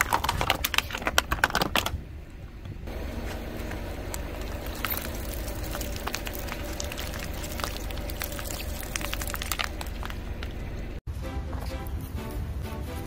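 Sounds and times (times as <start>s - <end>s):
tyre rolling low rumble: 0.0s - 11.0s
plastic and gel beads crackling: 4.4s - 10.5s.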